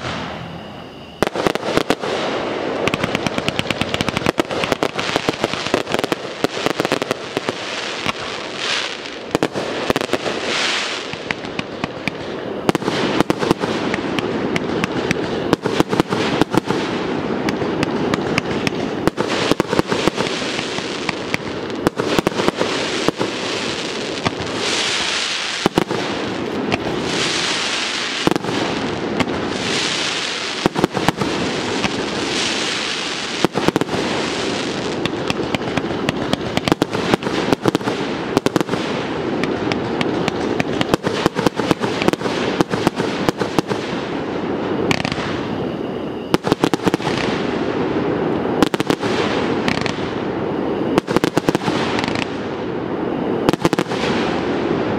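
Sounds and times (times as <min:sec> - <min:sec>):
fireworks bursts and bangs: 0:00.0 - 0:00.4, 0:01.2 - 0:54.9
fireworks hissing: 0:00.0 - 0:52.8
fireworks crackling: 0:00.0 - 0:54.9.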